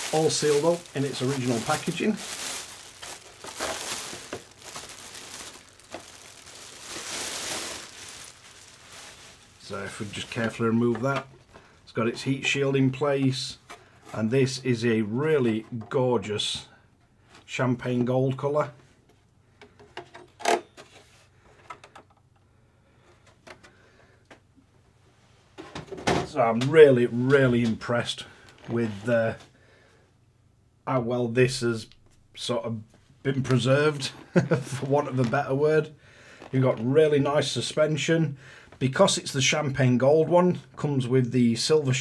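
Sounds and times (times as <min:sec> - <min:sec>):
plastic bag crinkling: 0:00.0 - 0:11.6.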